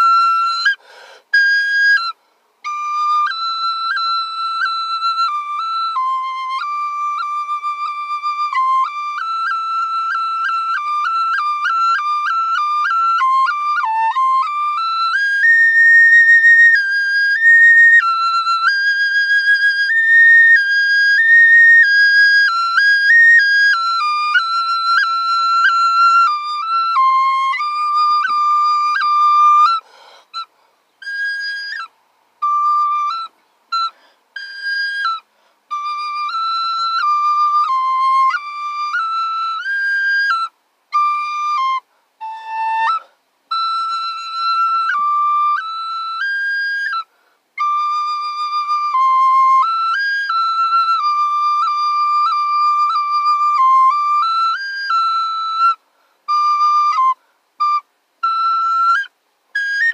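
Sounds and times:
solo flute melody: 0:00.0 - 0:59.9
breath sounds: 0:00.8 - 0:01.3, 0:29.8 - 0:30.9, 0:47.1 - 0:47.5.

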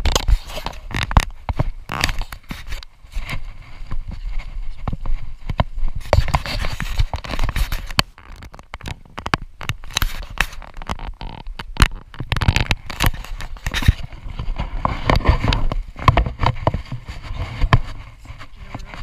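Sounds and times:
footsteps through dry grass: 0:00.3 - 0:09.2.

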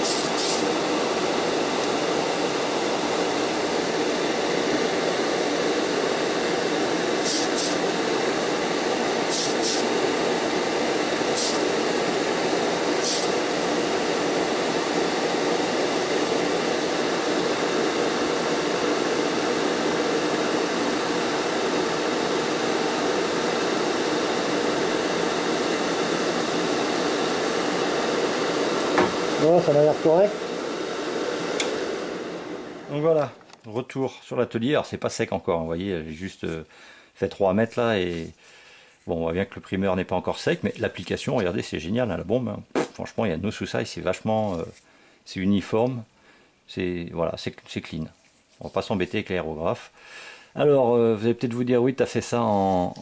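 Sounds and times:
aerosol can spraying: 0:00.0 - 0:00.9, 0:06.8 - 0:14.5
extractor fan running: 0:00.0 - 0:33.7.

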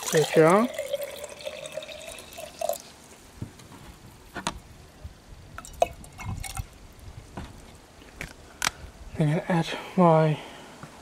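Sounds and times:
water dripping: 0:00.0 - 0:02.9, 0:05.6 - 0:06.8.

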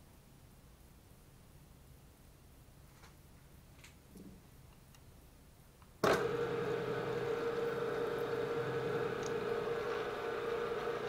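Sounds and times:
milling machine spindle humming: 0:06.0 - 0:11.0.

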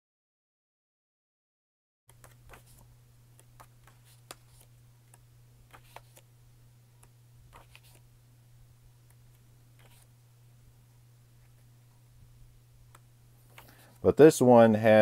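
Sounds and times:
paper pages flipping: 0:02.1 - 0:06.3, 0:07.0 - 0:08.0, 0:09.1 - 0:10.1, 0:12.9 - 0:14.1
steady low hum: 0:02.1 - 0:15.0.

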